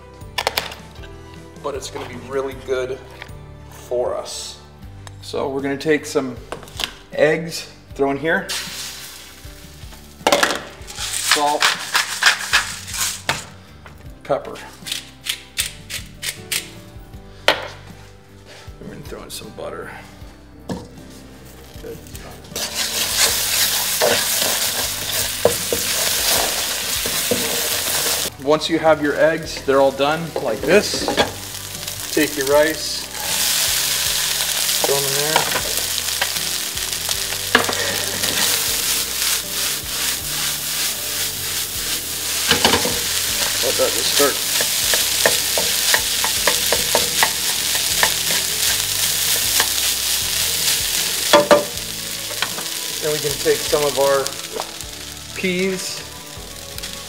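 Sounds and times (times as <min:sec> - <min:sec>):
eggs sizzling in a hot pan: 0:08.5 - 0:13.7, 0:20.9 - 0:57.0
utensil scraping pan: 0:10.9 - 0:13.4, 0:22.5 - 0:28.3, 0:29.6 - 0:54.8.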